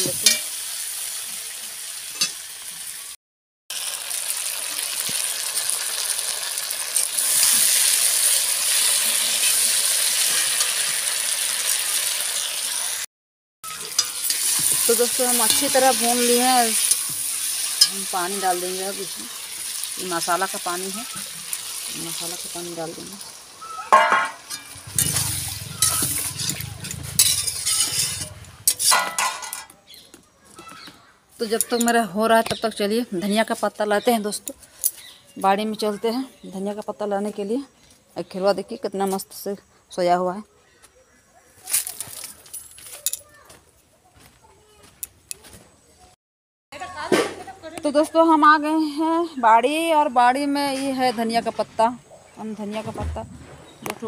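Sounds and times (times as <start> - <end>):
meat sizzling in hot oil: 0.0 - 13.0, 13.7 - 29.0
metal spatula scraping a pan: 13.8 - 18.1, 23.9 - 29.7.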